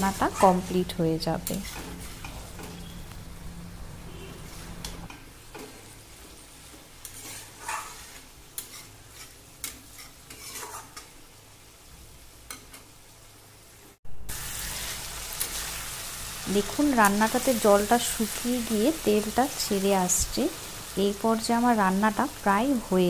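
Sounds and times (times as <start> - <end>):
faint sizzle: 0.0 - 23.0
spatula scraping a pan: 1.4 - 3.0, 5.5 - 11.2.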